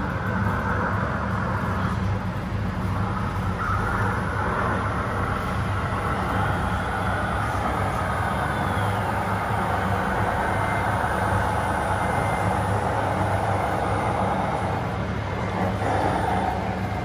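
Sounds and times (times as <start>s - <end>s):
toy truck engine drone: 0.0s - 17.0s.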